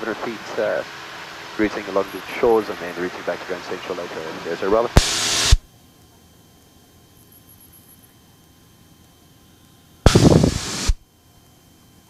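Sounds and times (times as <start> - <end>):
faint steady hiss: 0.0 - 12.0
radio static burst: 1.6 - 5.6, 10.1 - 11.0.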